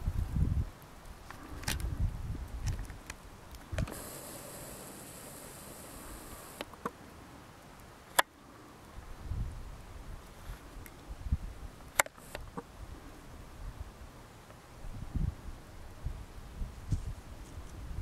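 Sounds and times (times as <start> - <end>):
wind rumble: 0.0 - 6.6, 8.9 - 18.0
sharp clicks: 2.6 - 7.0, 11.9 - 12.7
zoom motor high hiss: 3.8 - 6.7, 12.2 - 12.6
microphone handling noise: 16.6 - 18.0.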